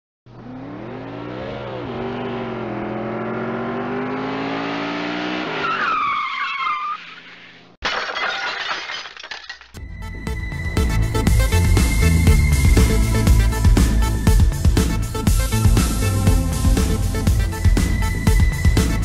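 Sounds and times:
engine revving: 0:00.3 - 0:05.6
tyres screeching: 0:05.5 - 0:07.7.

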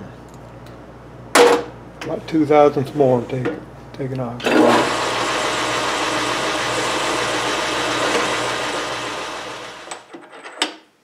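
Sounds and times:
metal lathe whirring: 0:04.4 - 0:10.0.

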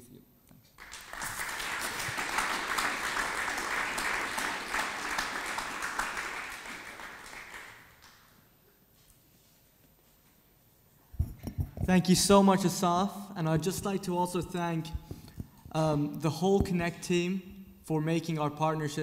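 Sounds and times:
audience applauding: 0:00.8 - 0:08.4.

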